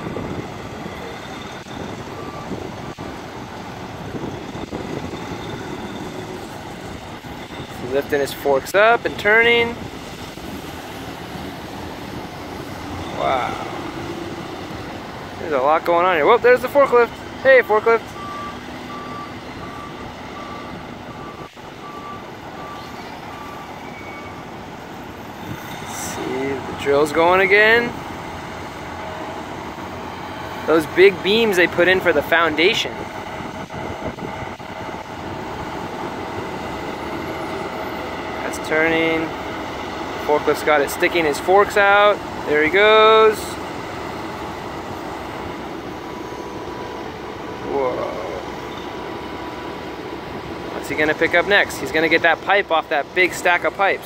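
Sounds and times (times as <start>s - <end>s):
diesel machinery engines running: 0.0s - 54.0s
forklift reversing alarm beeping: 0.0s - 54.0s
faint beep: 18.2s - 24.4s.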